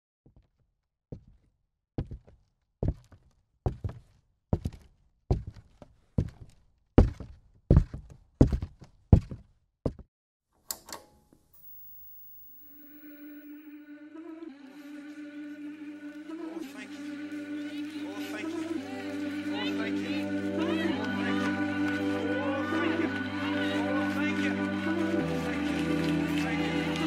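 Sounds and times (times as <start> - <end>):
television switch click: 10.7 - 12.8
television humming tone: 10.9 - 23.8.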